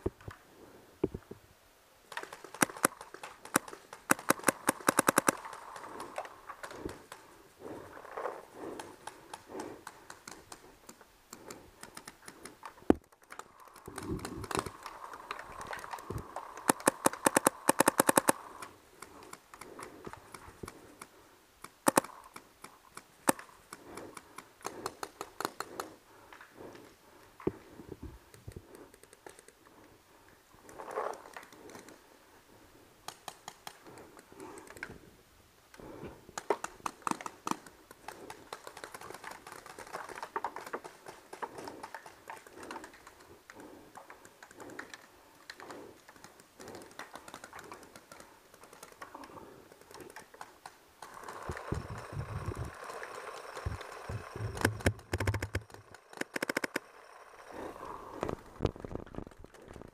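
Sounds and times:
paintball markers firing: 0:02.1 - 0:07.3, 0:08.6 - 0:26.0, 0:35.8 - 0:57.0
rustling: 0:02.1 - 0:35.1.

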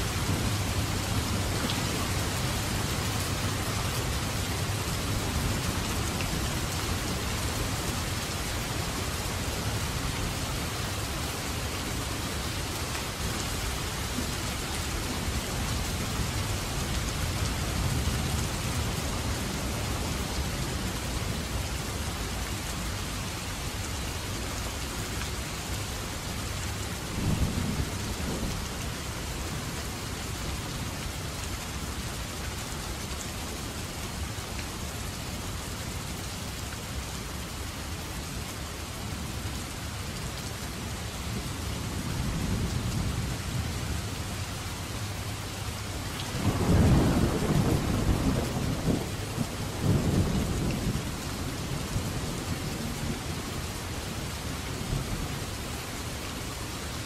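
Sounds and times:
heavy rain: 0:00.0 - 0:57.0
thunder rumbling: 0:46.4 - 0:53.2.

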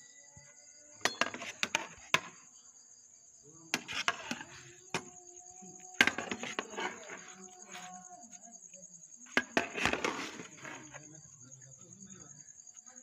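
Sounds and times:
metal spoon scraping cooking pot: 0:01.0 - 0:02.3, 0:03.8 - 0:05.2, 0:06.0 - 0:08.1, 0:09.3 - 0:11.0.

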